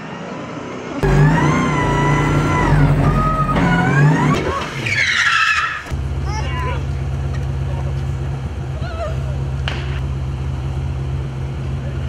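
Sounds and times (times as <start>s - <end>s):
car engine revving: 1.0s - 5.2s.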